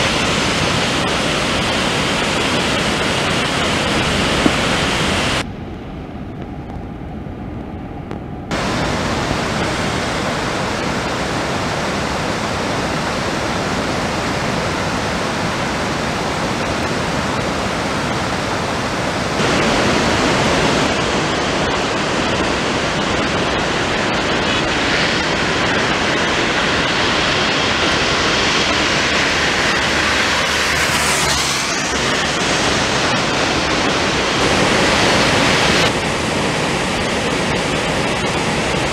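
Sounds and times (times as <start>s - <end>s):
heavy rain: 0.0s - 5.4s, 8.5s - 38.9s
running floodwater: 0.0s - 5.4s, 8.5s - 38.9s.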